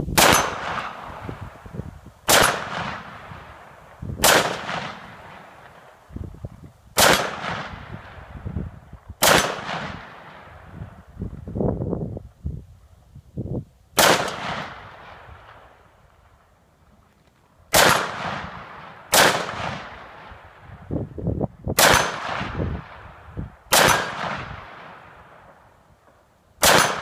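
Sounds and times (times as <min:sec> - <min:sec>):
rifle shots with echo: 0:00.1 - 0:01.7, 0:02.3 - 0:06.1, 0:07.0 - 0:08.5, 0:09.2 - 0:11.0, 0:14.0 - 0:15.9, 0:17.7 - 0:20.8, 0:21.8 - 0:25.8, 0:26.6 - 0:27.0.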